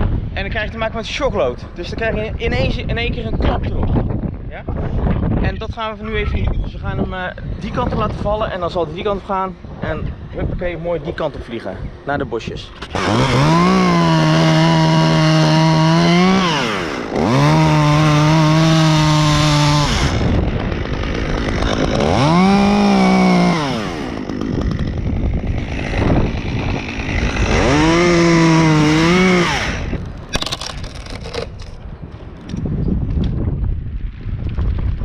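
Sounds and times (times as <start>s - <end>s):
chainsaw cutting wood: 12.8s - 31.7s.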